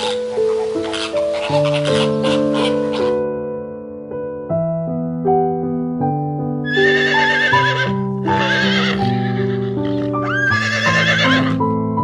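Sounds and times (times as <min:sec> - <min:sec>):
piano music: 0:00.0 - 0:12.0
horse whinnying: 0:06.7 - 0:11.6.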